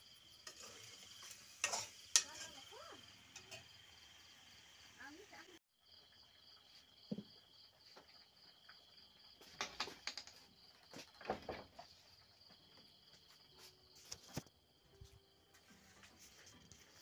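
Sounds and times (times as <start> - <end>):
crickets trilling: 0.0 - 15.4.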